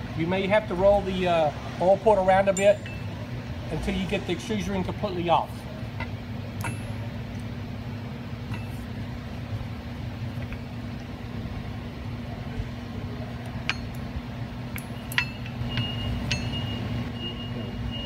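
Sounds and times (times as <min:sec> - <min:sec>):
steady low hum: 0:00.0 - 0:18.0
light metallic clinks: 0:06.6 - 0:07.1, 0:13.5 - 0:14.1, 0:14.7 - 0:16.7.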